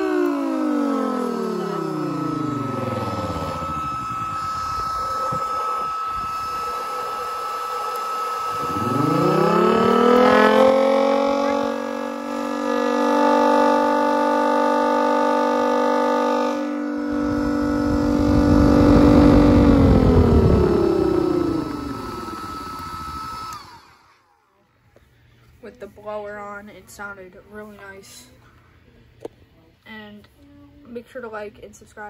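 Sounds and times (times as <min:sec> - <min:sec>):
siren wailing: 0:00.0 - 0:23.9
high whine of air pump: 0:00.0 - 0:24.4
low rumble: 0:17.0 - 0:23.7.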